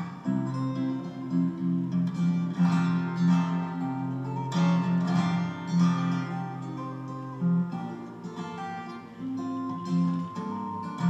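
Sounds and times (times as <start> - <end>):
fingerstyle acoustic guitar: 0.0 - 11.0.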